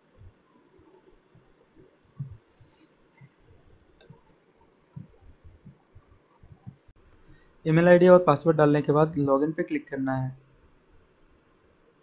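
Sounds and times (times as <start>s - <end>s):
faint low thumps: 2.2s - 2.4s, 4.9s - 7.0s.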